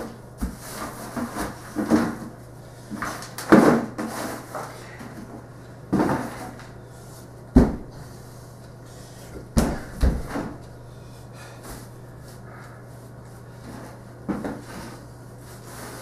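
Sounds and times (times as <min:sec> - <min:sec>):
knocks and thumps on wooden floor: 0:07.5 - 0:07.9.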